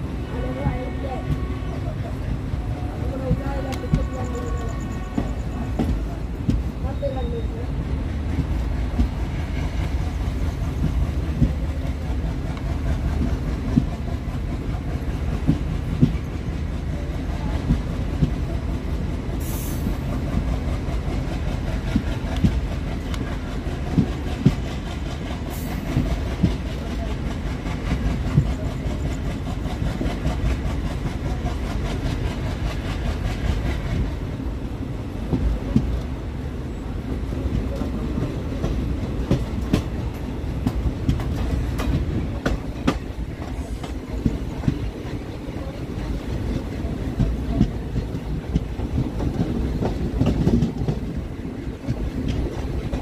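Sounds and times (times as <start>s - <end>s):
train wheels rumbling on rail: 0.0s - 53.0s
wheels clicking over rail joints: 37.0s - 53.0s.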